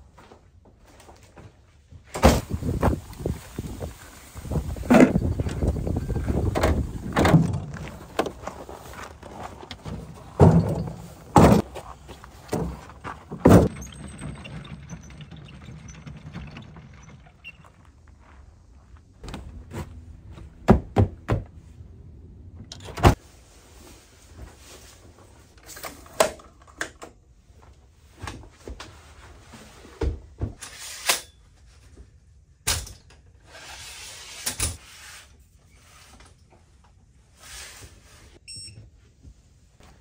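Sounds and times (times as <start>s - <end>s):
camping gear knocking and rustling: 0.1s - 21.6s.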